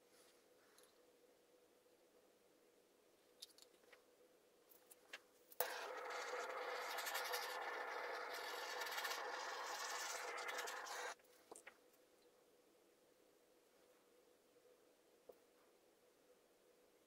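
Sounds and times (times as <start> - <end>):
gas torch hissing: 5.6 - 11.2.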